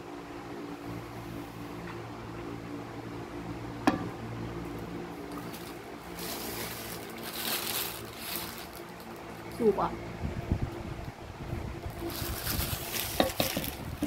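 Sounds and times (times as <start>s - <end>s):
low hum: 0.0s - 14.0s
plastic rustling: 5.2s - 9.8s, 11.8s - 14.0s.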